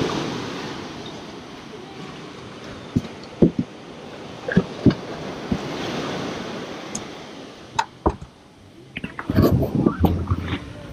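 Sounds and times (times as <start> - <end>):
ocean water washing: 0.0 - 10.9
sharp knocks and thumps: 2.9 - 3.8, 7.8 - 8.3.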